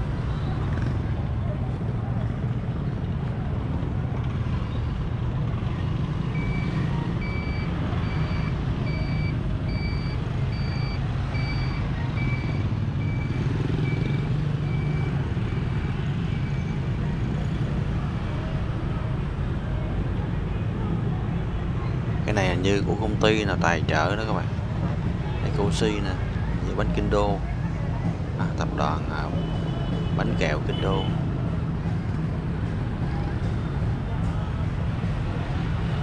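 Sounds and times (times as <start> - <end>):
low rumble of engines and traffic: 0.0 - 36.0
reversing alarm beeping: 6.3 - 16.8.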